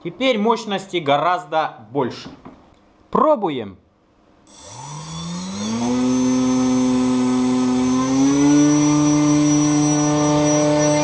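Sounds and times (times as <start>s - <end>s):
electric motor whine: 4.5s - 11.0s.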